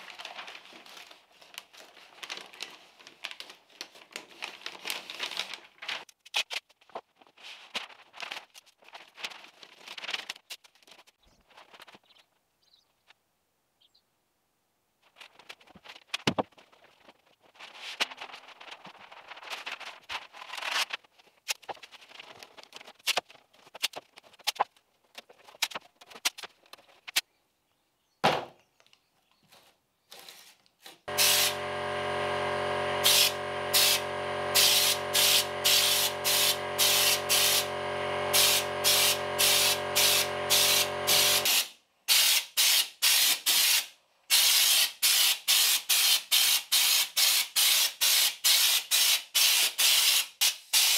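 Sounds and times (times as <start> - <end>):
steady hum: 31.1 - 41.5
spray gun hissing bursts: 31.1 - 45.6.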